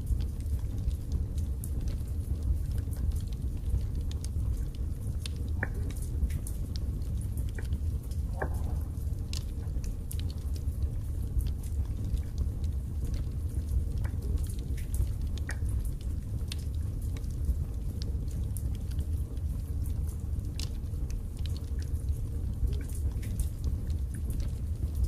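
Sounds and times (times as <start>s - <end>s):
fire crackling in a fireplace: 0.0s - 25.0s.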